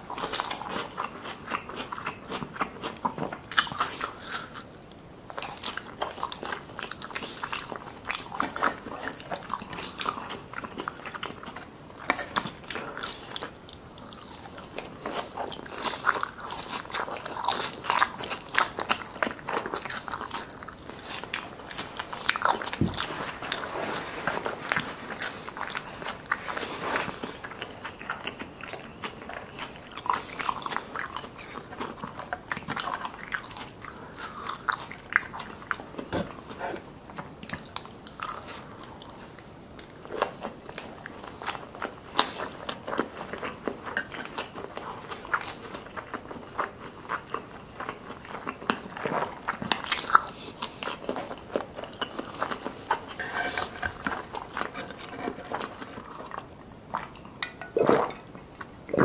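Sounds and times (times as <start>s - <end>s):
chewing crispy food: 0.0s - 59.0s.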